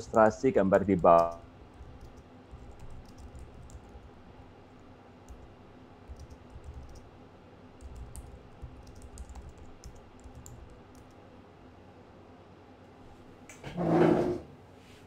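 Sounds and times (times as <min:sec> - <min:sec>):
keyboard typing: 0:00.0 - 0:07.2, 0:07.8 - 0:11.2
low background rumble and hum: 0:00.0 - 0:13.6.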